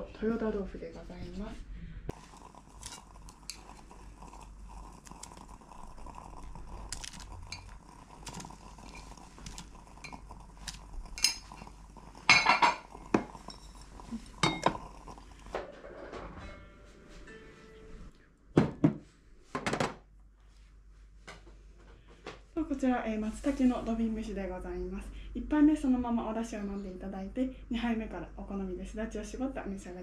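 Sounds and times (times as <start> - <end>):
dishes and glassware clinking: 11.2 - 11.6, 12.3 - 13.8, 14.4 - 14.8, 15.5 - 17.0.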